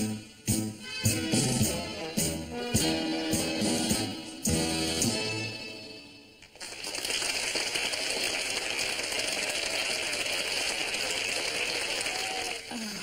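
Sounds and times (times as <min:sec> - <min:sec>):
dance music: 0:00.0 - 0:06.2
crowd applauding: 0:06.4 - 0:13.0.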